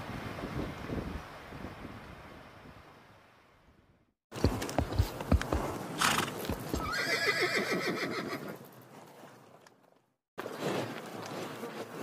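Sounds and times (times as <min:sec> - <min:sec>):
outdoor pasture ambience: 0:04.3 - 0:12.0.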